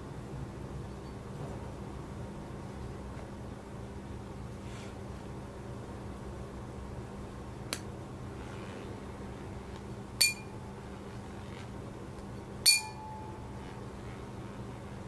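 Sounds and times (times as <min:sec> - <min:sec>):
tuning fork metallic clinks: 0:10.2 - 0:10.6, 0:12.6 - 0:13.8.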